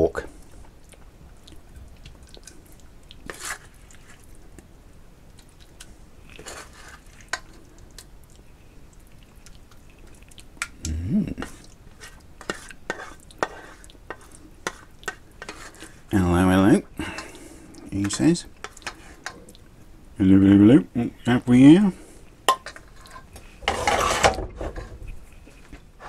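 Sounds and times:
metal spoon scraping a pan: 3.3s - 4.1s, 6.4s - 7.5s, 11.4s - 16.0s, 22.5s - 24.9s.

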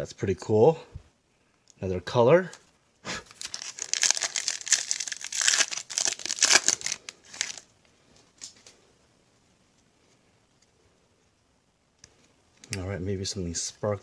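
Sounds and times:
plastic wrapper crinkling: 2.5s - 7.7s.

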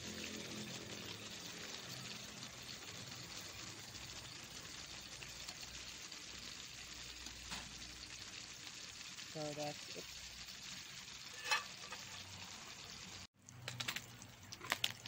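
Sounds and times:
fish sizzling in hot oil: 0.0s - 15.0s.

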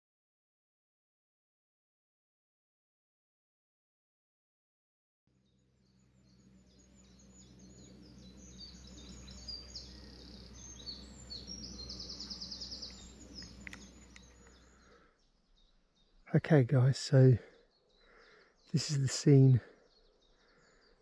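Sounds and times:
songbirds singing: 5.3s - 21.0s
rapid bird trill: 6.7s - 15.1s.

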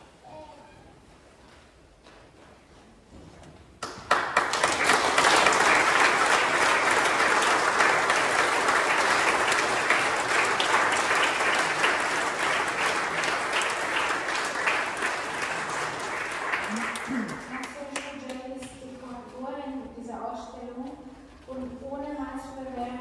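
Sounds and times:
audience applauding: 3.8s - 18.2s.

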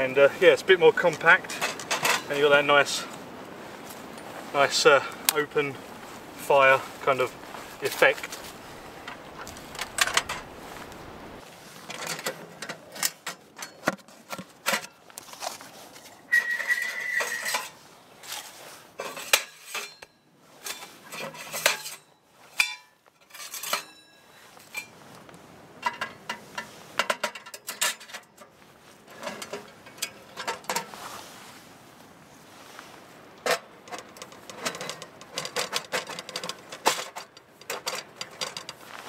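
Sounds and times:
metal stove parts clinking: 1.1s - 2.4s, 9.0s - 10.5s, 11.9s - 15.0s, 16.2s - 17.8s, 19.0s - 25.0s, 25.8s - 30.9s, 33.4s - 38.9s
ringing metal scrape: 16.1s - 18.4s, 19.0s - 25.0s.

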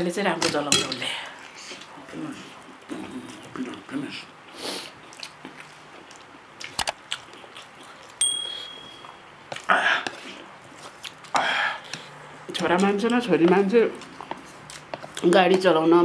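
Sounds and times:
short bright ding: 8.2s - 9.2s.

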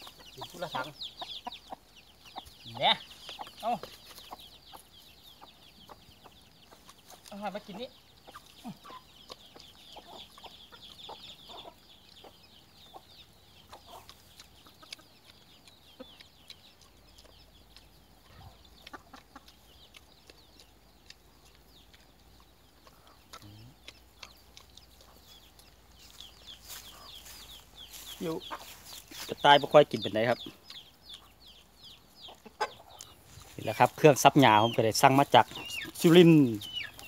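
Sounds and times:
chickens clucking: 0.0s - 37.0s.

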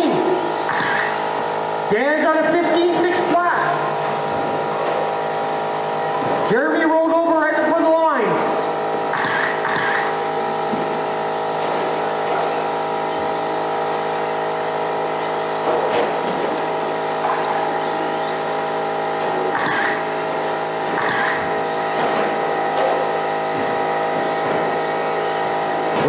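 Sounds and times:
rc car motors whining: 0.4s - 1.6s, 8.6s - 15.7s, 16.5s - 26.0s.

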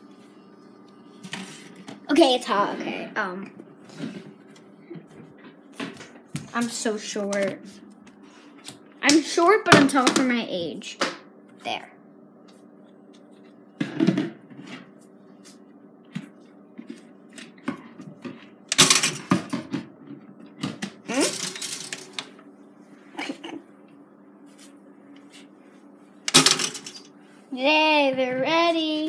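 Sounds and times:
toaster humming: 17.2s - 23.9s, 26.2s - 28.8s.

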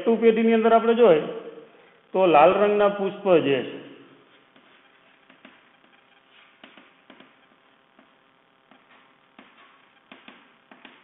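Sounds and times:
chalk scratching on blackboard: 4.3s - 7.4s
chalk tapping on blackboard: 4.5s - 7.4s, 8.0s - 11.0s.

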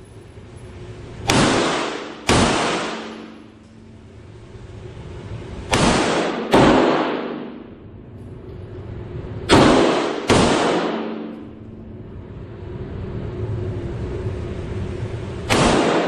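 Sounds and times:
pistol shots echoing indoors: 1.1s - 3.8s, 5.5s - 7.9s, 9.4s - 11.6s, 15.5s - 16.0s.

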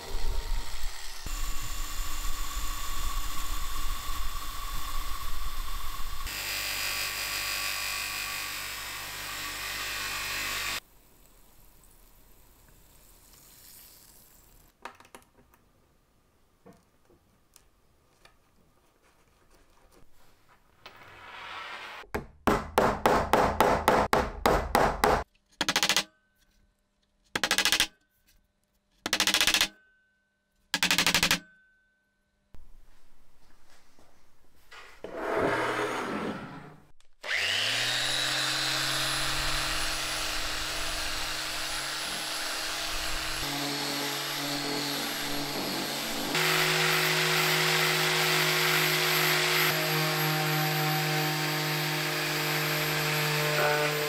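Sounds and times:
drill grinding whine: 0.0s - 10.8s, 37.2s - 54.0s.

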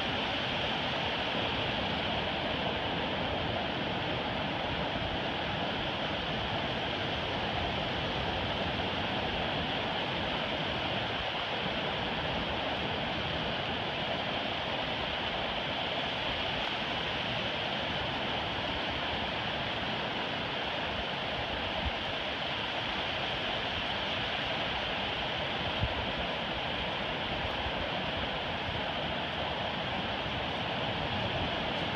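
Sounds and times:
ocean surf on beach: 0.0s - 31.9s.

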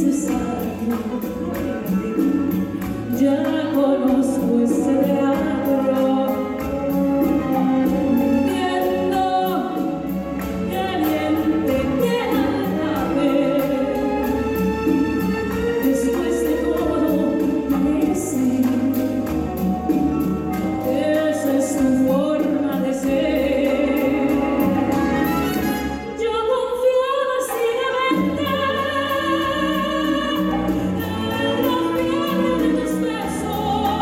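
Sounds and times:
steady percussion beat: 0.0s - 26.0s
symphony orchestra playing: 0.0s - 26.7s, 27.9s - 34.0s
woman singing into microphone: 0.0s - 34.0s.

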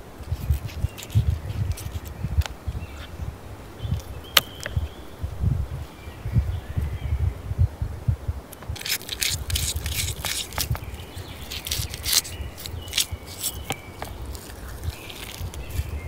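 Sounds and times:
low rumble: 0.0s - 8.8s
knife scraping fish scales: 0.4s - 2.2s, 8.8s - 16.0s.

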